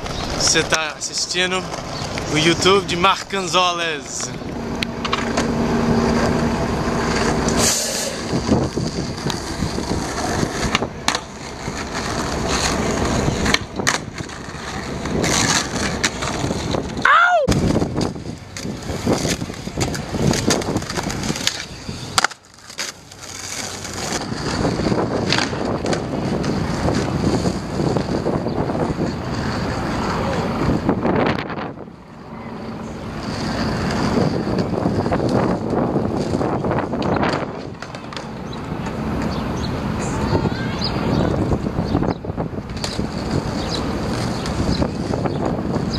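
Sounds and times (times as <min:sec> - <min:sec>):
skateboard sharp clacks: 0:00.0 - 0:03.4, 0:04.0 - 0:30.9, 0:33.0 - 0:41.7, 0:42.6 - 0:45.9
wind buffeting microphone: 0:00.0 - 0:22.2, 0:23.6 - 0:45.9
skateboard wheels on rough asphalt: 0:00.0 - 0:45.9.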